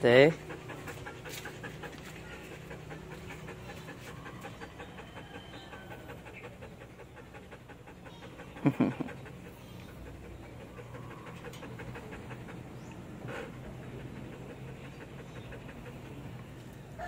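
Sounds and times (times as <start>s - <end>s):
dog panting: 0.0s - 17.0s.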